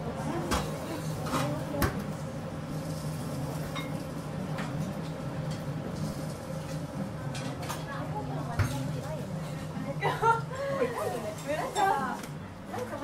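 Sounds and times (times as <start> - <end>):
low hum of kitchen equipment: 0.0 - 13.0
utensils and dishes clinking: 2.8 - 8.0, 10.9 - 13.0.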